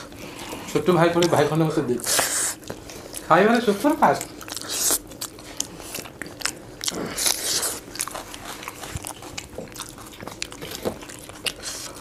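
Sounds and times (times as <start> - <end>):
people chewing food: 0.0 - 12.0.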